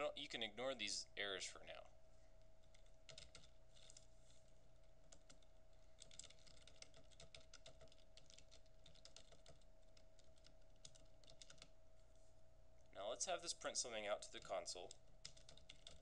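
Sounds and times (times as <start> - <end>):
keyboard typing: 2.6 - 4.1, 4.8 - 11.8, 13.6 - 16.0.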